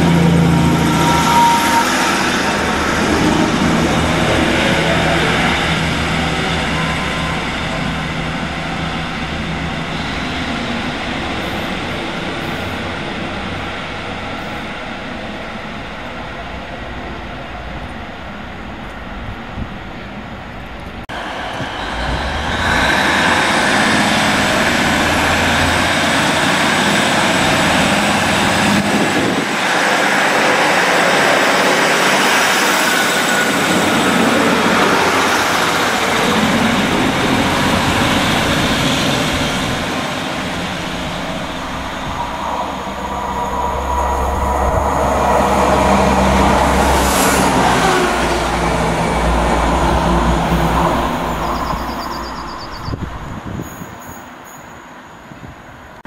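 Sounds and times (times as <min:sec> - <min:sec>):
diesel train engines running: 0:00.0 - 0:56.0
train approaching: 0:00.0 - 0:56.0.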